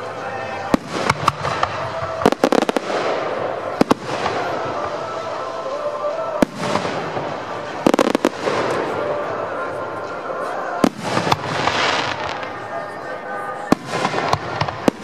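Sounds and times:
fireworks bursting with sharp bangs: 0:00.1 - 0:09.8, 0:10.5 - 0:12.8, 0:13.6 - 0:15.0.

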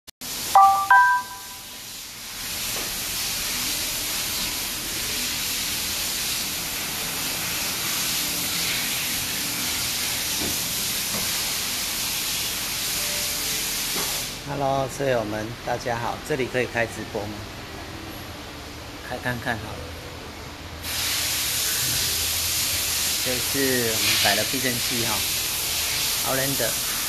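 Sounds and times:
electronic chime rising notes: 0:00.6 - 0:01.7
steady air hiss: 0:01.5 - 0:15.1, 0:20.8 - 0:27.0.

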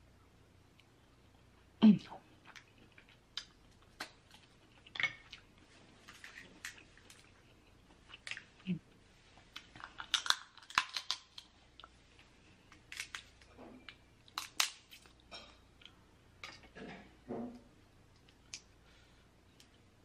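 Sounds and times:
chewing with wet mouth sounds: 0:02.3 - 0:12.3
crab shell crackling and clicking: 0:09.6 - 0:11.5.

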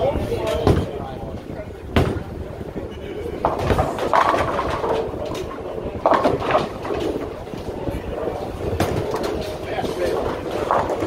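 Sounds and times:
bowling alley din: 0:00.0 - 0:11.0
bowling balls rolling on lanes: 0:00.0 - 0:11.0
bowling pins crashing: 0:03.4 - 0:11.0.

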